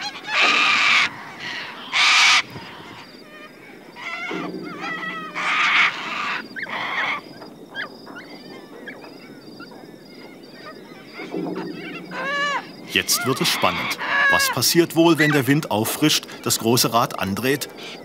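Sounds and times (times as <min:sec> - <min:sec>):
corellas screeching: 0:00.0 - 0:03.1, 0:03.9 - 0:07.3, 0:11.0 - 0:15.7
soft chattering bird calls: 0:00.0 - 0:18.0.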